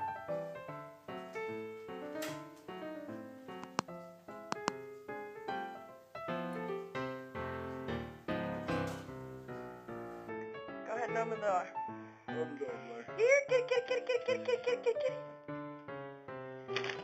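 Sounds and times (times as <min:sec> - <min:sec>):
light piano tune: 0:00.0 - 0:17.0.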